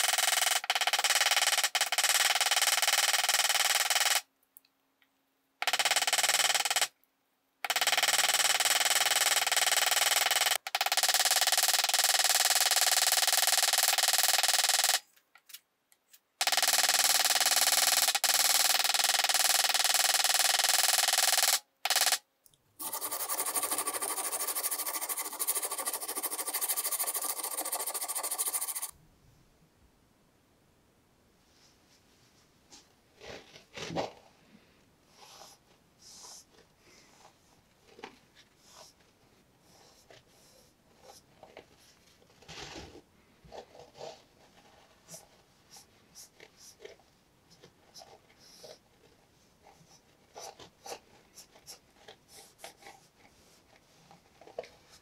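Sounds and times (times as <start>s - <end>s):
quiet hissy sound: 28.9s - 39.6s.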